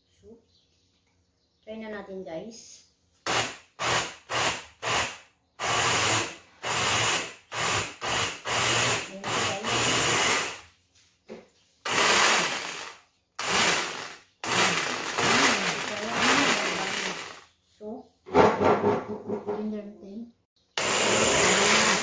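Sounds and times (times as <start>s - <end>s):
electric blender grinding: 3.3s - 10.6s, 11.9s - 17.5s, 20.8s - 22.0s.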